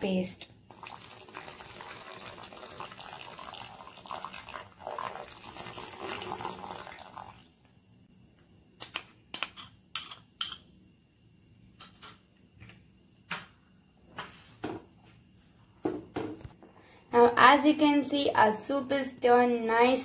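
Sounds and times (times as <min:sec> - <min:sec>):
liquid splashing and bubbling: 0:00.7 - 0:07.5.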